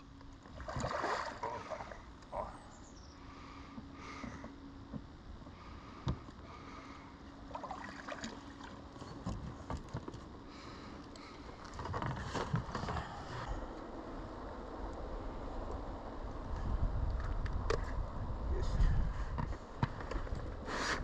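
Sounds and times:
steady low background noise: 0:10.2 - 0:20.8.

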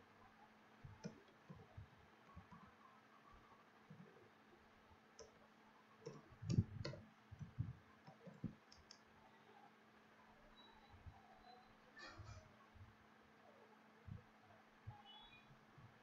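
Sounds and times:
computer keyboard and mouse clicks: 0:00.9 - 0:02.8, 0:05.2 - 0:05.4, 0:06.0 - 0:09.1.

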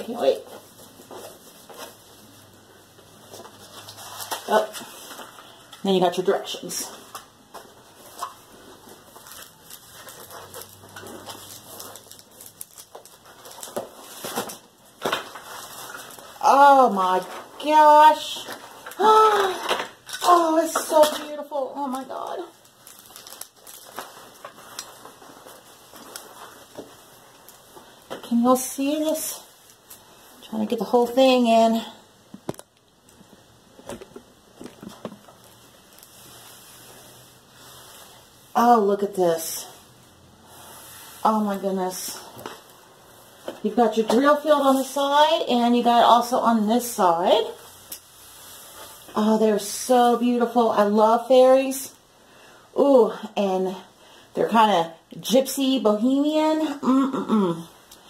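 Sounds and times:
paper and plastic wrap rustling: 0:00.0 - 0:31.7, 0:32.4 - 0:40.0
faint steady hiss: 0:00.0 - 0:58.0
sharp crackles: 0:09.1 - 0:16.4, 0:18.4 - 0:28.0
soft handling taps and rustles: 0:32.3 - 0:36.2.

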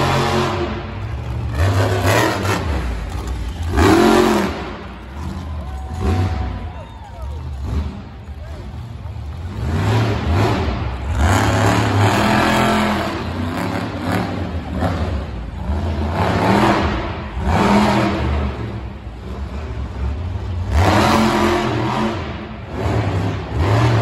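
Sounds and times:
truck engine revving hard: 0:00.0 - 0:06.6, 0:07.4 - 0:24.0.

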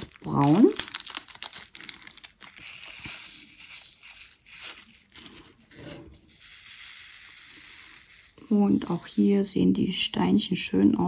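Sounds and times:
plastic bags crinkling: 0:00.0 - 0:06.5.

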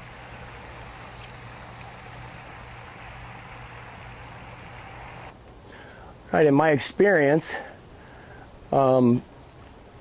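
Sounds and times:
constant low hum: 0:00.0 - 0:06.4
even hiss: 0:00.0 - 0:09.8.

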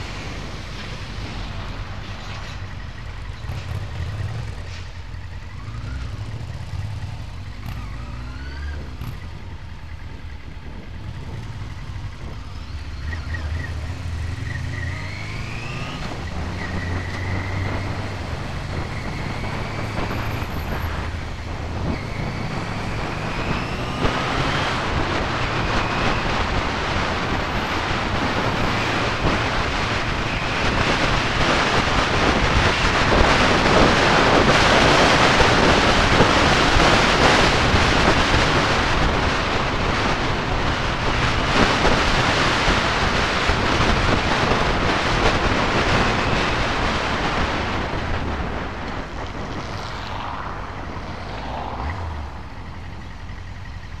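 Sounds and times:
motorcycle engine accelerating: 0:00.0 - 0:54.0
wind noise on microphone: 0:15.4 - 0:53.2.

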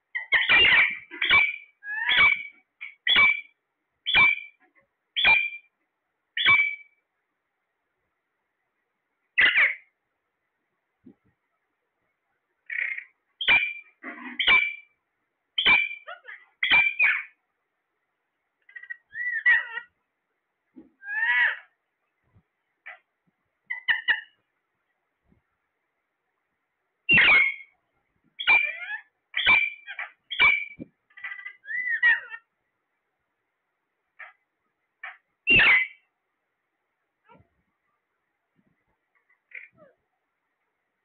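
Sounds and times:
parakeets squawking: 0:00.1 - 0:04.6, 0:05.2 - 0:05.7, 0:06.4 - 0:06.9, 0:09.4 - 0:09.9, 0:12.7 - 0:14.9, 0:15.6 - 0:17.4, 0:18.7 - 0:20.0, 0:21.0 - 0:21.8, 0:23.7 - 0:24.4, 0:27.1 - 0:27.7, 0:28.4 - 0:32.5, 0:35.0 - 0:36.0, 0:39.5 - 0:39.9
parakeets chattering: 0:00.1 - 0:05.7, 0:06.4 - 0:06.9, 0:09.4 - 0:09.9, 0:12.6 - 0:15.0, 0:15.6 - 0:17.4, 0:18.6 - 0:20.0, 0:21.0 - 0:21.8, 0:23.7 - 0:24.4, 0:27.1 - 0:27.8, 0:28.4 - 0:32.5, 0:35.0 - 0:36.1, 0:39.2 - 0:39.9
parakeet whistle: 0:00.2 - 0:03.5, 0:04.1 - 0:04.5, 0:05.2 - 0:05.6, 0:06.4 - 0:06.9, 0:27.1 - 0:27.7, 0:28.4 - 0:30.8, 0:35.5 - 0:36.0.

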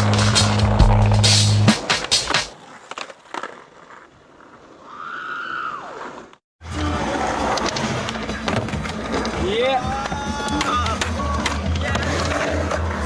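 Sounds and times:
skateboard wheels clacking on bricks: 0:01.8 - 0:04.2
skateboard rolling quietly: 0:01.8 - 0:13.0.

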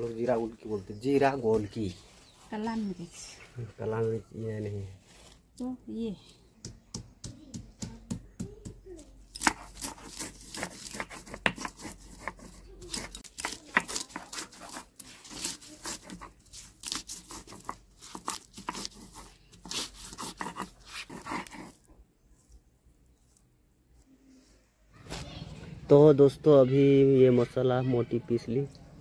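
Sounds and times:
stone roller pounding and grinding: 0:09.5 - 0:16.4.

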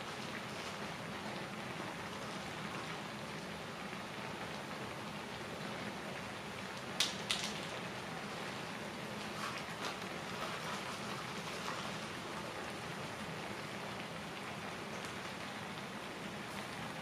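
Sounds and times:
broth boiling and spattering: 0:00.0 - 0:17.0.

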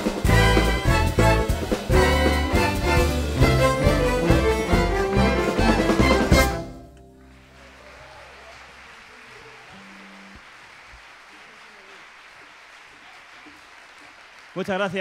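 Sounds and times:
audience applause: 0:07.1 - 0:15.0.

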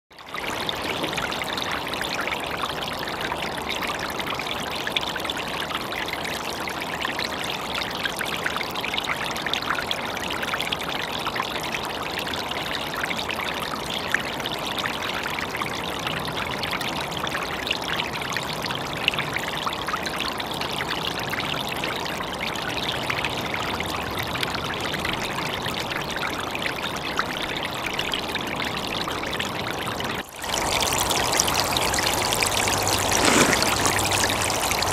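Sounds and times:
stream trickling under ice: 0:00.2 - 0:34.9.

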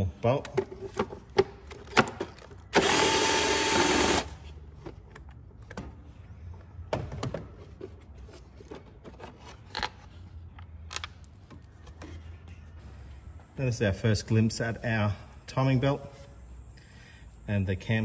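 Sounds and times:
power tool whirring: 0:02.7 - 0:04.4.

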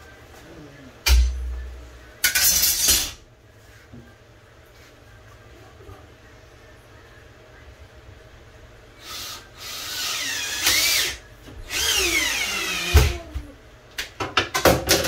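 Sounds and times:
power drill driving screws: 0:09.1 - 0:12.9.

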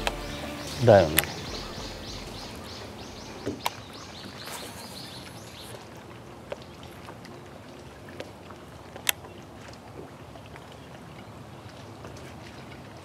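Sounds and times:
bird chirping: 0:00.0 - 0:05.8
faint outdoor hiss: 0:00.0 - 0:13.0.

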